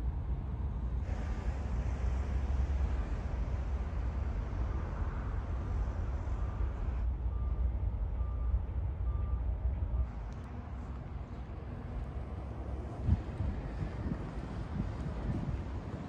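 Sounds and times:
road traffic rumble: 0.0s - 16.0s
wind: 0.0s - 16.0s
faint electronic beep: 7.3s - 10.2s.

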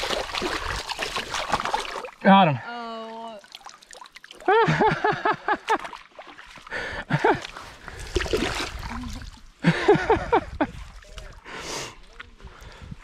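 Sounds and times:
fish thrashing in water: 0.0s - 2.2s, 7.8s - 9.5s
water splashing: 0.0s - 12.5s.

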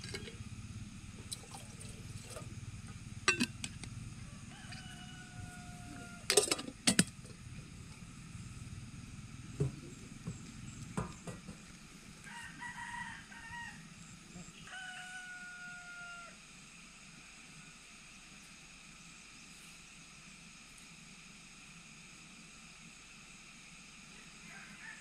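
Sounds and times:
rooster crowing: 4.2s - 6.4s, 12.2s - 16.4s, 24.4s - 25.0s.

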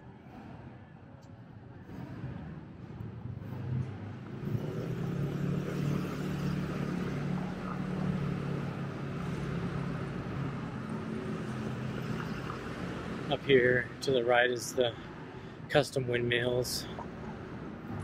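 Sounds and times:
road noise: 0.0s - 18.0s.

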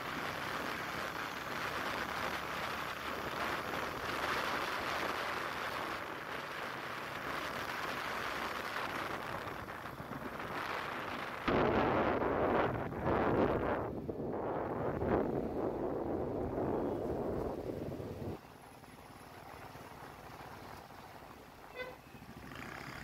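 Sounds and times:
rushing air and road noise: 0.0s - 23.0s
wind buffeting microphone: 1.4s - 18.4s.

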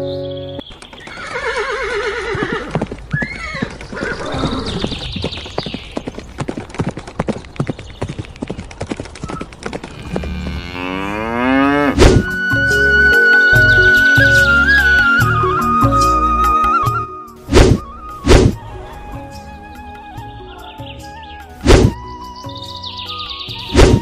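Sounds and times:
hoof clip-clops: 0.6s - 11.3s
cow mooing: 9.9s - 12.0s
light music: 12.1s - 24.0s.

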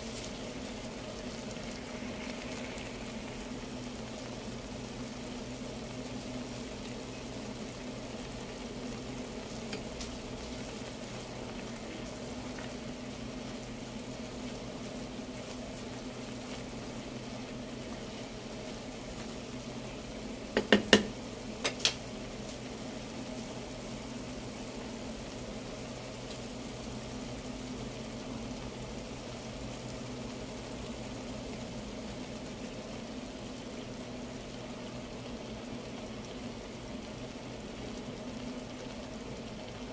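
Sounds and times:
leaves simmering in a pot: 0.0s - 39.9s
wooden spoon knocking pot: 20.6s - 22.0s.

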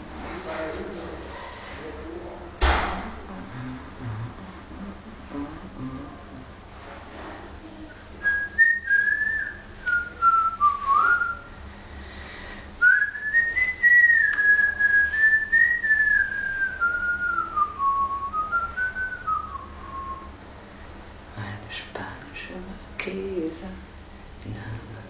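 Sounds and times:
person whistling a tune: 8.2s - 11.4s, 12.8s - 20.3s.

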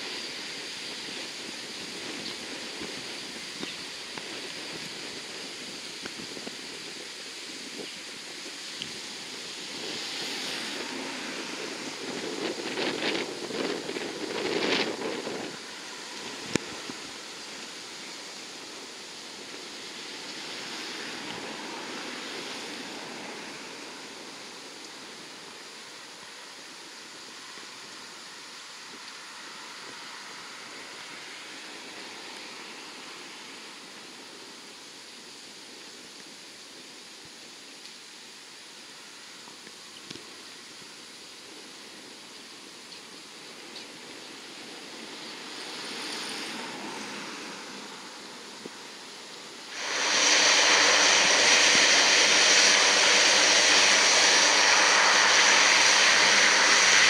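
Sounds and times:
turboprop aircraft roaring: 0.0s - 34.1s, 47.6s - 57.0s.

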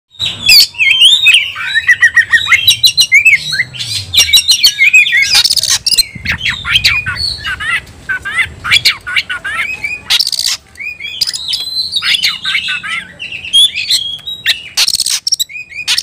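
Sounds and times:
bird singing: 0.1s - 16.0s
harsh buzzy bird rasp: 14.8s - 16.0s.

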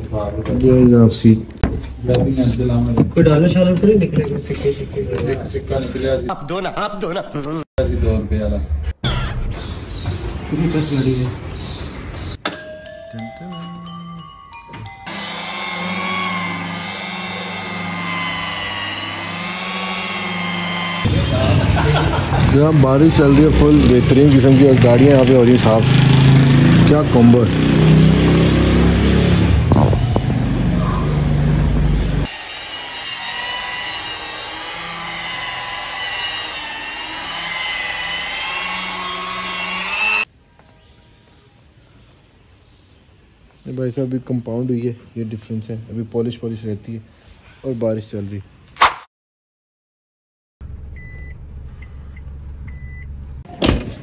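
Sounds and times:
music: 12.6s - 15.1s
electric polisher whining: 15.0s - 26.8s, 31.5s - 40.3s.

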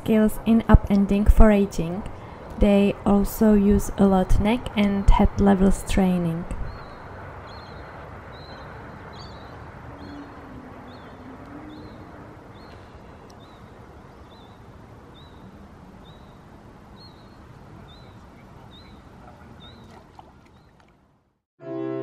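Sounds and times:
outdoor background hiss: 0.0s - 21.4s
bird calling: 6.6s - 20.9s.

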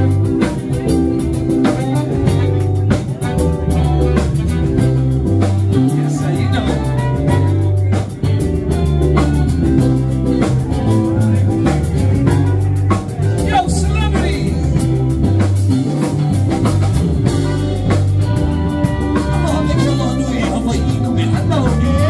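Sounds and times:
drum kit: 0.0s - 22.0s
electric bass: 0.0s - 22.0s
guitar: 0.0s - 22.0s
person singing: 5.7s - 11.8s, 17.2s - 22.0s.

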